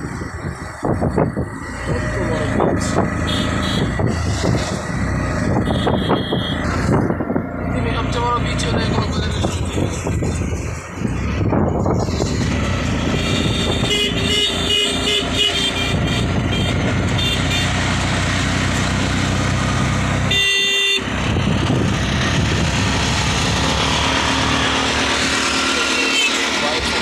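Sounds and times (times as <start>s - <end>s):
auto-rickshaw engine running: 0.0s - 27.0s
horn honk: 3.2s - 4.2s, 5.5s - 6.7s, 13.1s - 17.8s, 20.2s - 21.1s, 25.8s - 26.6s.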